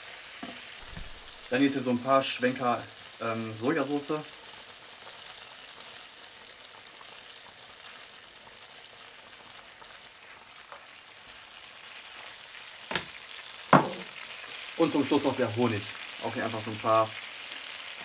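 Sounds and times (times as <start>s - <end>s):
chicken sizzling in frying pan: 0.0s - 18.0s
sauce bubbling: 0.2s - 1.8s, 4.2s - 15.2s
sharp knocks: 13.8s - 14.1s.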